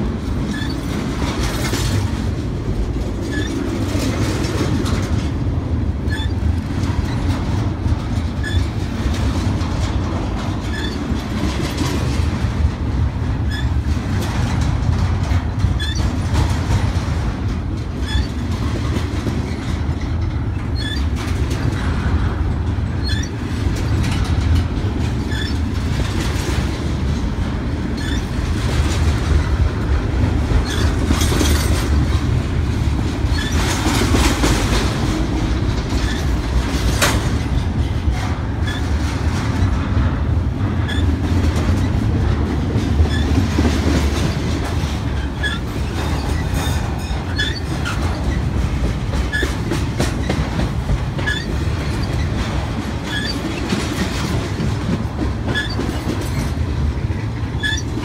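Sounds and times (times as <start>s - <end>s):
freight train rolling past: 0.0s - 58.0s
wheels clacking over rail joints: 0.0s - 58.0s
short high squeaks: 6.1s - 6.4s, 8.4s - 8.6s, 10.7s - 11.0s, 15.8s - 16.0s, 18.0s - 18.4s, 20.8s - 21.0s, 23.0s - 23.4s, 28.0s - 28.3s, 46.2s - 47.7s.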